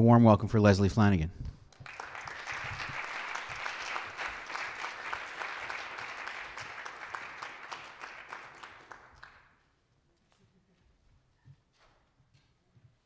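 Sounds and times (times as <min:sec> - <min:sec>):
audience applauding: 0:01.7 - 0:09.5.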